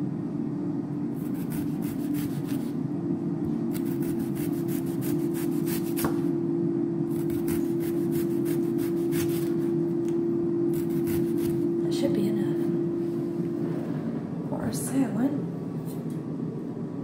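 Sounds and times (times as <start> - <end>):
air fryer hum: 0.0 - 17.0
knife slicing on wooden board: 1.2 - 2.7, 3.7 - 6.3, 7.2 - 9.6, 10.7 - 11.6.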